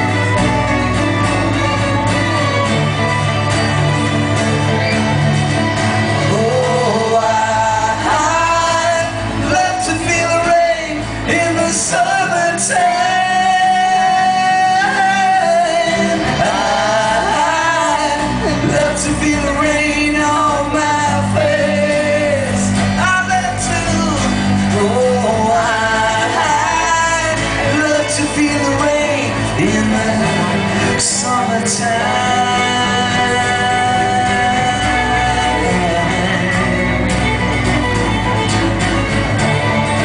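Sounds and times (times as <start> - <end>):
strummed acoustic guitars: 0.0 - 40.0
person singing lead: 6.2 - 37.6.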